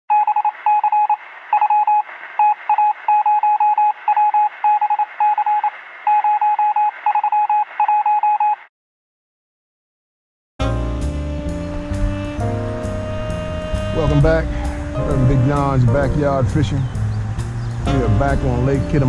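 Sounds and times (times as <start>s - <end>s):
morse code beeps: 0.1s - 8.7s.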